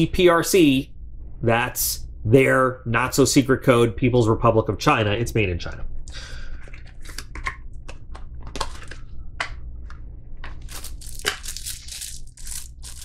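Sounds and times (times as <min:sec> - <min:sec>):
plastic bag crinkling: 0:10.6 - 0:13.0.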